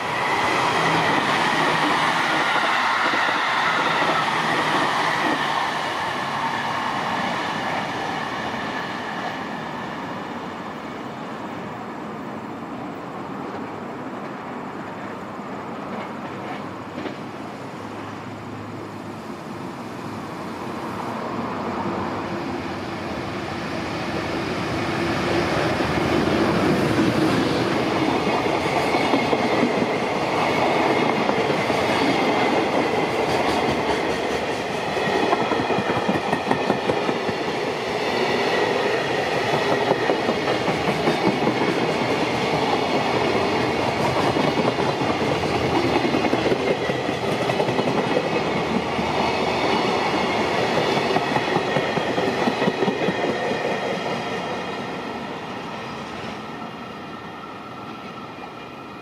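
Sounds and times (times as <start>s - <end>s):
freight train rumbling past: 0.0s - 59.0s
wheels clickety-clack: 39.4s - 49.0s.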